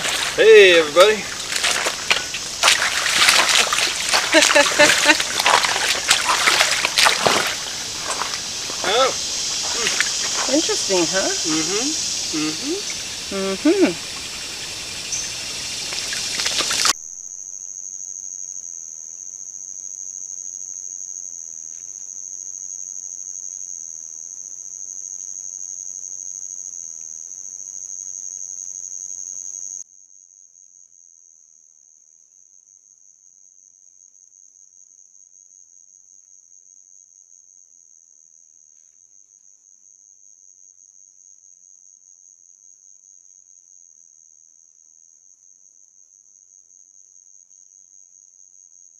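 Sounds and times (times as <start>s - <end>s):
water running: 0.0s - 17.0s
night insects chorus: 0.0s - 29.8s.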